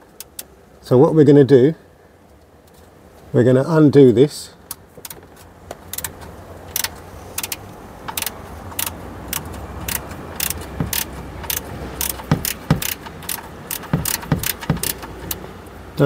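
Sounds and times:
socket ratchet clicking: 0:05.9 - 0:15.4
dull knocks: 0:10.4 - 0:15.2.

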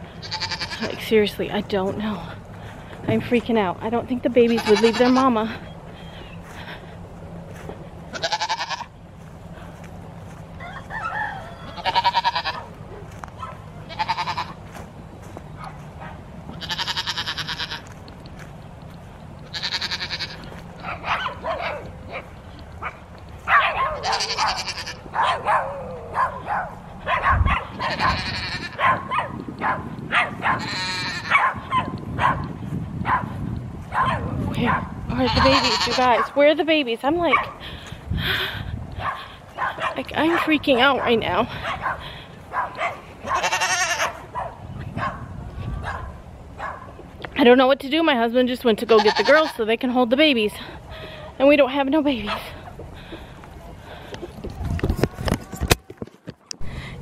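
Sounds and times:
goats bleating: 0:00.1 - 0:01.0, 0:04.4 - 0:05.6, 0:07.5 - 0:09.0, 0:11.5 - 0:13.2, 0:13.8 - 0:14.8, 0:16.5 - 0:18.1, 0:19.4 - 0:21.0, 0:24.0 - 0:25.2, 0:27.7 - 0:28.8, 0:30.6 - 0:31.3, 0:35.1 - 0:36.2, 0:43.2 - 0:44.2, 0:48.8 - 0:49.6.

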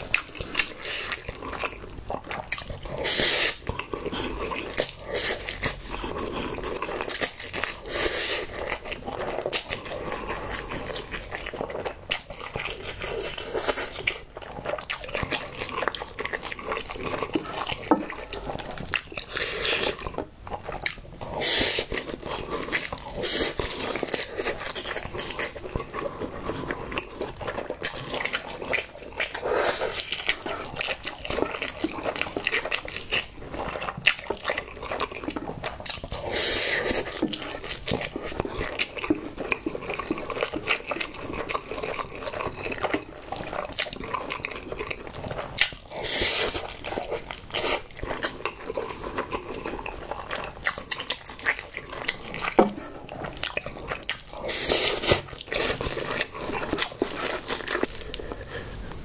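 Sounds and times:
wet chewing and slurping: 0:00.0 - 0:59.0
loud slurps: 0:54.4 - 0:56.2.

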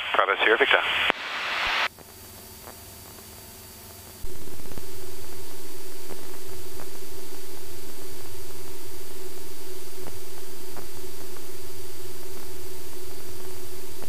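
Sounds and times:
airplane engine and airflow: 0:04.2 - 0:14.0
steady drone: 0:04.2 - 0:14.0
faint intercom hum: 0:04.3 - 0:14.0.

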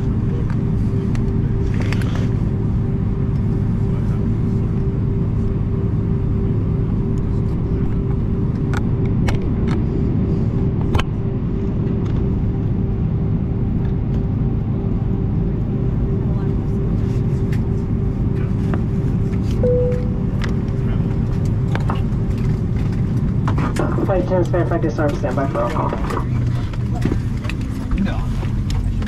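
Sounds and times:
aircraft cabin engine drone: 0:00.0 - 0:29.0.

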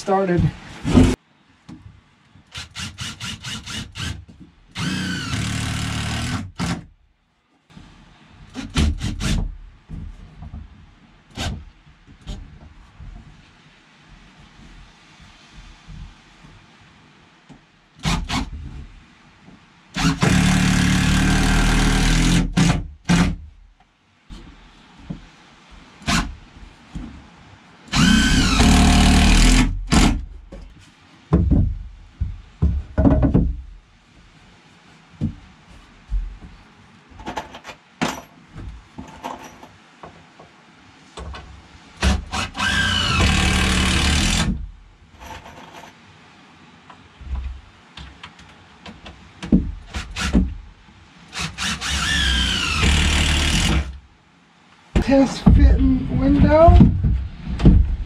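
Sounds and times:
cordless drill driving screws: 0:04.8 - 0:06.8, 0:20.0 - 0:23.3, 0:27.9 - 0:30.2, 0:42.0 - 0:44.5, 0:51.3 - 0:53.9
boards knocking into place: 0:31.3 - 0:33.6, 0:56.4 - 0:58.0.

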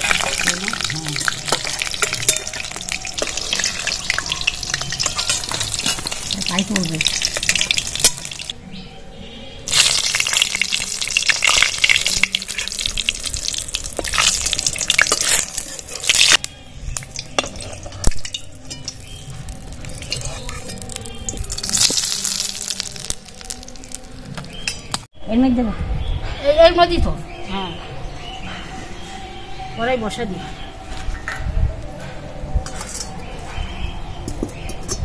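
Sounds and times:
metal spatula scraping a pan: 0:00.0 - 0:08.5
hot oil sizzling and crackling: 0:00.0 - 0:08.6, 0:09.7 - 0:25.1.

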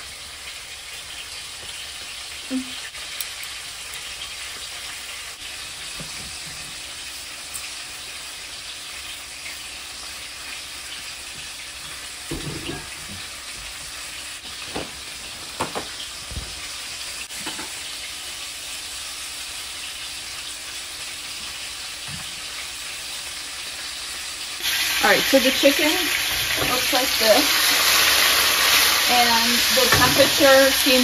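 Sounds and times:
chicken sizzling in a pan: 0:00.0 - 0:31.0.

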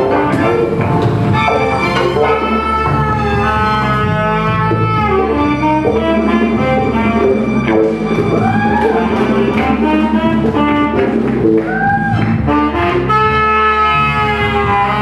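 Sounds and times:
bass line: 0:00.0 - 0:15.0
saxophone: 0:00.0 - 0:15.0
trumpet: 0:00.0 - 0:15.0.

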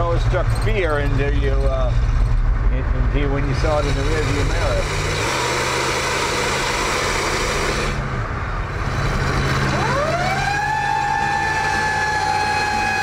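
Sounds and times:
car engine driving: 0:00.0 - 0:13.0
police siren wailing: 0:09.6 - 0:13.0.

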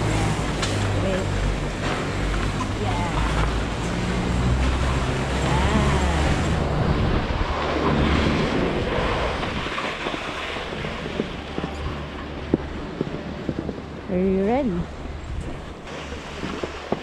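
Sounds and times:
wind buffeting microphone: 0:00.0 - 0:17.0
boards sliding over snow: 0:15.5 - 0:17.0.

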